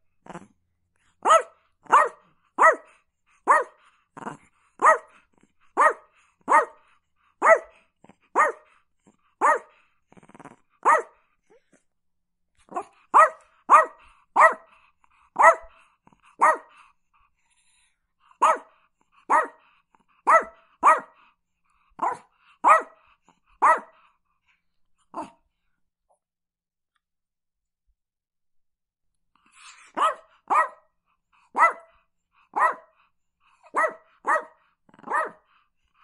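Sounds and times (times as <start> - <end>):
small dog barking: 1.2 - 3.8, 4.8 - 5.2, 5.8 - 8.8, 9.4 - 9.8, 10.8 - 11.2, 12.6 - 14.8, 15.4 - 16.8, 18.4 - 21.2, 22.0 - 24.0, 29.7 - 33.0, 33.6 - 35.5.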